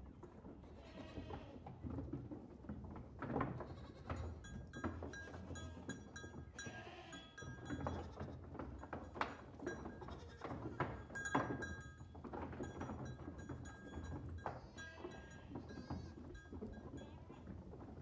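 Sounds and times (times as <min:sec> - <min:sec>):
animals bleating: 0:06.6 - 0:07.4, 0:14.5 - 0:16.2.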